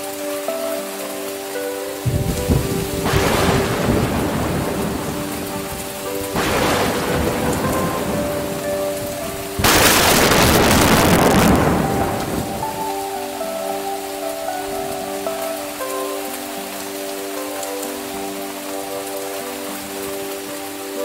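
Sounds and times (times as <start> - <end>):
heavy rain: 0.0 - 21.0
rolling thunder: 2.0 - 12.9
sudden thunderclap: 2.1 - 5.4, 6.3 - 12.8.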